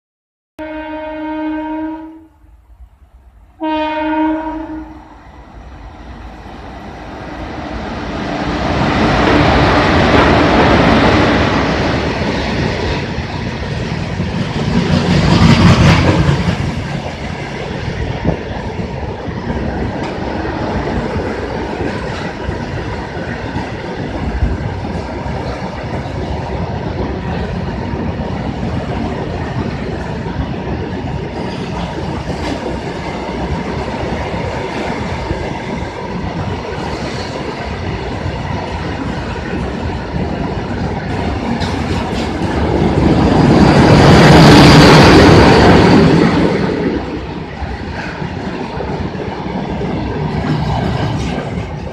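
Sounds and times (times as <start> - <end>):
freight wagons rumbling on rails: 6.1 - 51.9
clacks at rail joints: 19.5 - 26.2, 31.3 - 33.6, 38.4 - 44.0, 47.6 - 51.9.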